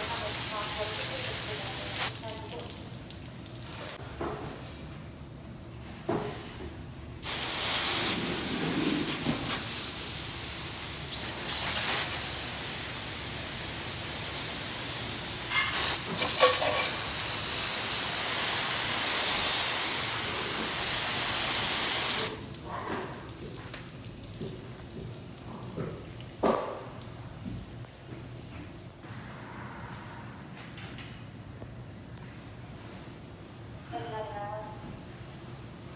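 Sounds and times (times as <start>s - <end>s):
hose spraying water: 0.0s - 3.0s, 7.2s - 22.5s.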